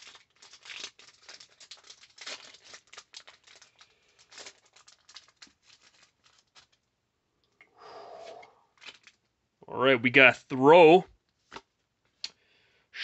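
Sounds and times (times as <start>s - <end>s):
foil wrapper tearing and crinkling: 0.0s - 6.9s, 8.8s - 9.3s.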